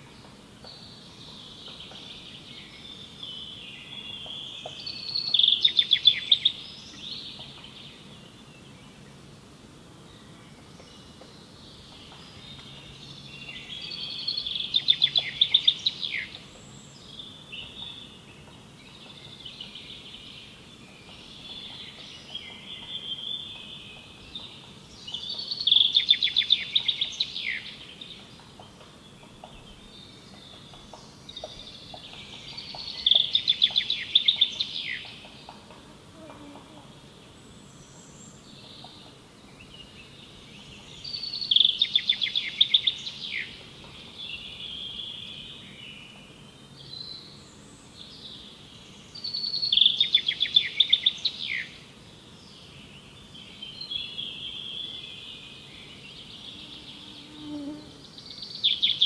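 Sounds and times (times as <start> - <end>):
songbird trilled song: 0.0 - 9.2, 10.1 - 35.7, 37.8 - 59.0
bird chirps: 10.5 - 35.7, 49.1 - 51.8, 52.6 - 59.0.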